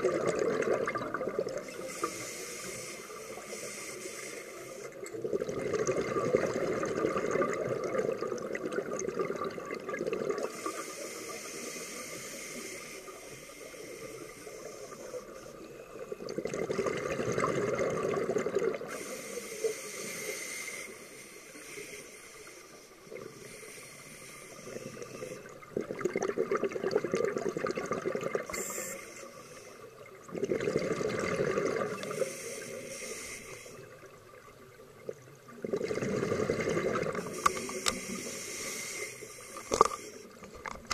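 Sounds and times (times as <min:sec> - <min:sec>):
exhaled bubbles underwater: 0:00.0 - 0:02.1, 0:04.9 - 0:11.8, 0:15.0 - 0:19.1, 0:24.6 - 0:28.6, 0:30.0 - 0:32.8, 0:33.7 - 0:38.4
regulator hiss: 0:01.7 - 0:05.0, 0:10.5 - 0:15.9, 0:18.9 - 0:25.6, 0:32.0 - 0:33.9, 0:37.2 - 0:40.4.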